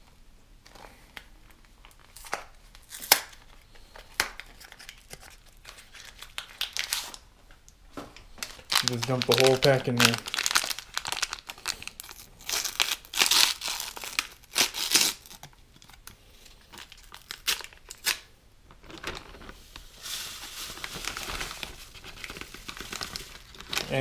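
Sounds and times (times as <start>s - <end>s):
paper packet crinkling and tearing: 0.7s - 7.2s, 8.4s - 24.0s
powder pouring into plastic bag: 18.8s - 24.0s.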